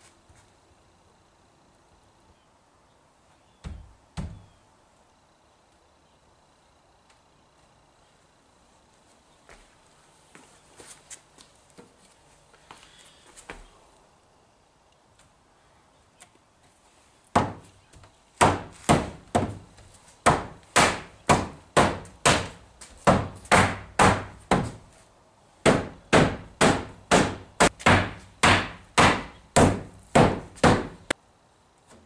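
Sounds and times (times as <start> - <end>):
hammer knocking on wood: 3.6 - 4.5, 17.4 - 17.7, 18.4 - 24.8, 25.6 - 31.0.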